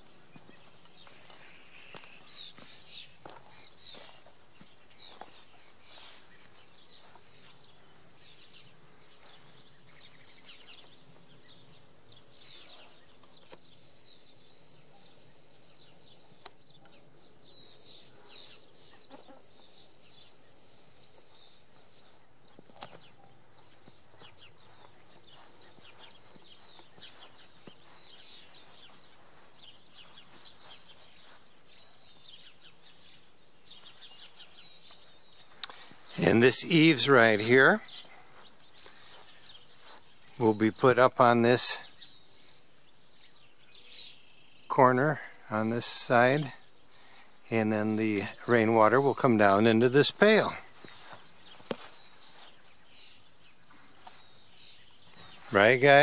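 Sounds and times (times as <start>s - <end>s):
insect chirping: 0.0s - 56.0s.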